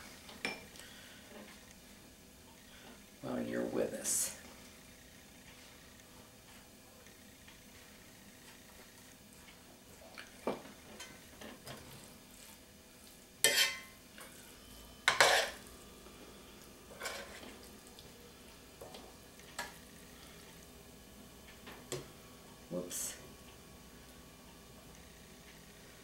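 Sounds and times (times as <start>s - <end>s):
metal spoon scraping skillet: 13.4s - 14.0s, 15.1s - 15.6s.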